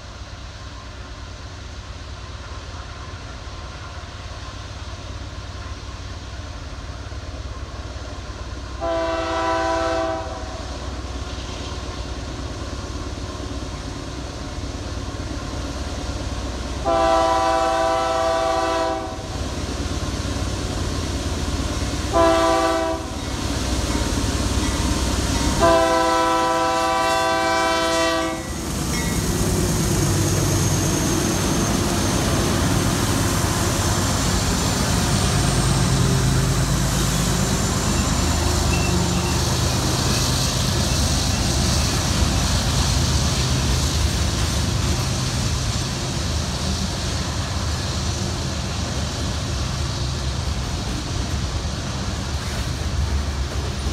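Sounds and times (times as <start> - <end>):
train wheels rolling on rails: 0.0 - 53.9
train air horn blasts: 8.8 - 10.7, 16.8 - 19.4, 22.1 - 23.2, 25.5 - 28.6
locomotive engines running: 28.4 - 53.9.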